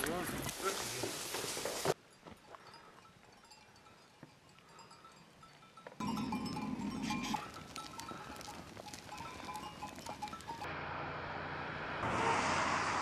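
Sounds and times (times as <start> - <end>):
goat bells tinkling: 1.7 - 10.7.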